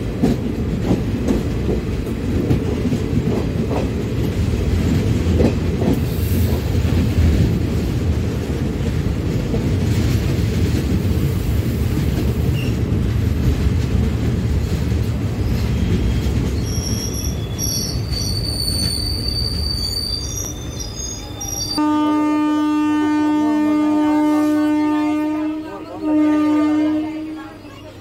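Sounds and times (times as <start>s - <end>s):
train wheels rumbling on rails: 0.0s - 28.0s
high wheel squeals: 15.4s - 21.8s
train horn: 21.8s - 27.7s.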